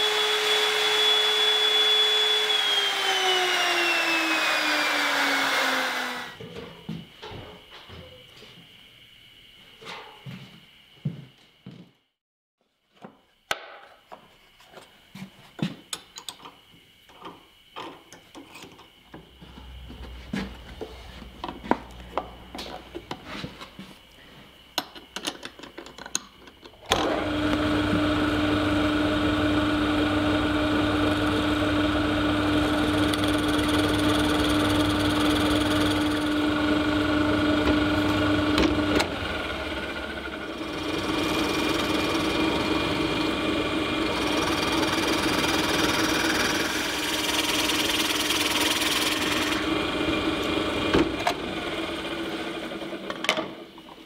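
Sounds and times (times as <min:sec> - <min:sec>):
drill press motor humming: 0:00.0 - 0:06.4, 0:26.9 - 0:53.2
clamps clicking and knocking: 0:24.8 - 0:27.0.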